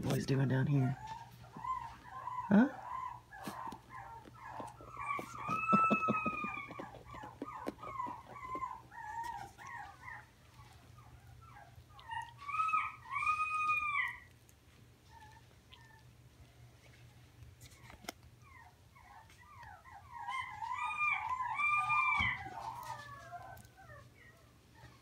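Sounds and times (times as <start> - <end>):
puppies whining and yipping: 0.1 - 25.0
scuffling clicks: 3.4 - 10.0.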